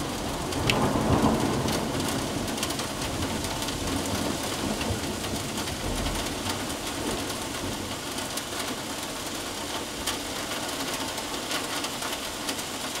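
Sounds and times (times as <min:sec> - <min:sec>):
low thunder rumble: 0:00.0 - 0:08.0
raindrops ticking: 0:00.0 - 0:13.0
steady rain falling: 0:00.0 - 0:13.0.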